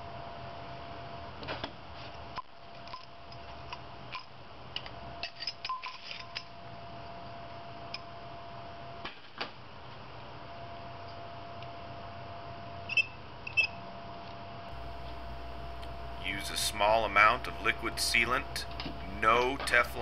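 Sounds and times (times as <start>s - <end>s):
faint hum: 14.6s - 20.0s.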